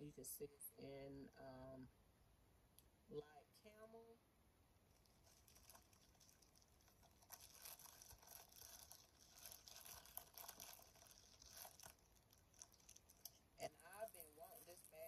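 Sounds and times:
plastic bag crinkling: 4.9 - 15.0.

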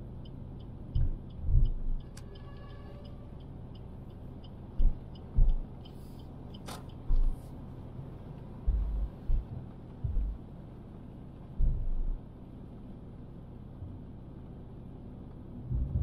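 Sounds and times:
car road rumble: 0.0 - 16.0
low thumps: 4.8 - 5.7, 8.6 - 10.4, 11.6 - 12.2, 15.7 - 16.0.

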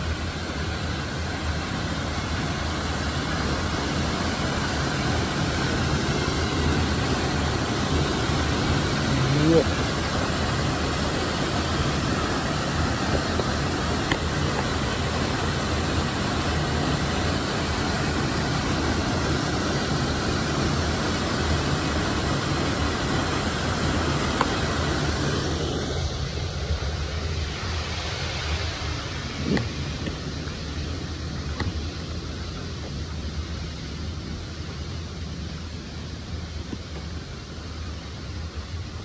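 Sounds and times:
vehicle running hum: 0.0 - 39.0
wide rushing sound: 24.6 - 32.3.

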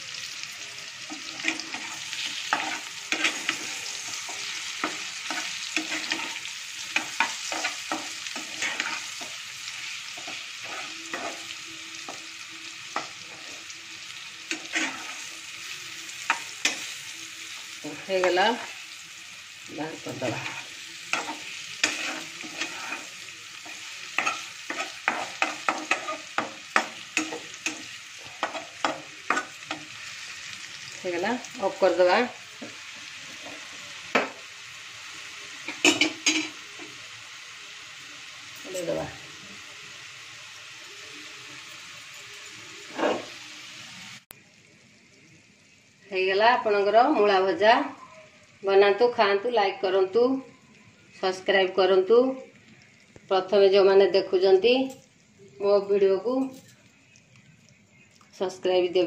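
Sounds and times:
food sizzling in oil: 0.0 - 59.0
metal spatula scraping pan: 1.1 - 12.2, 14.5 - 18.9, 20.0 - 30.7, 42.8 - 43.4.

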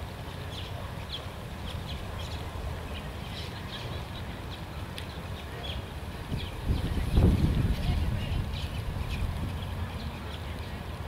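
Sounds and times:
small birds chirping: 0.1 - 11.0.

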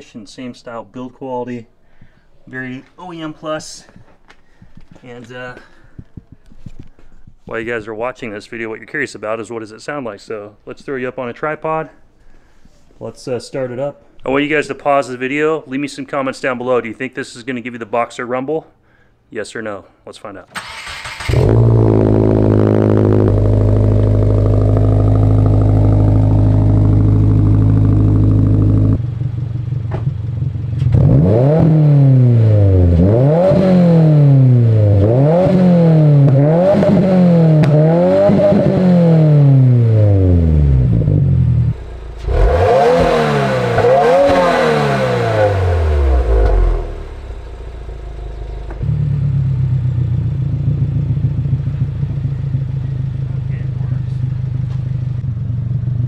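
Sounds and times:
car engine idling and revving: 20.7 - 56.0.

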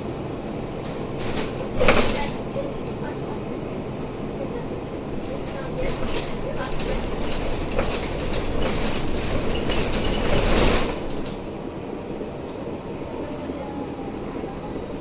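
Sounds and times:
bus engine and road noise: 0.0 - 15.0
body clicks and rattles: 0.8 - 3.0, 5.2 - 11.5.

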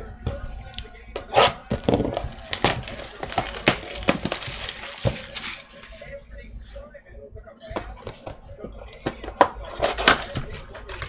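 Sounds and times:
cardboard clicks and knocks: 1.7 - 5.6
plastic wrappers crinkling: 1.7 - 6.2.

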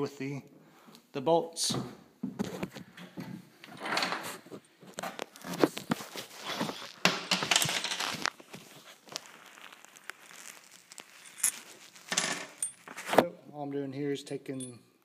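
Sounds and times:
handling rustling: 4.2 - 13.3.

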